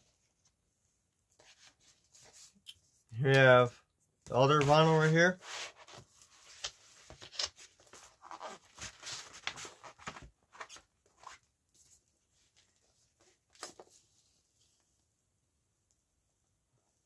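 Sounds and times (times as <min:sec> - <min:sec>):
paper and plastic sleeve rustling: 0:04.4 - 0:11.4.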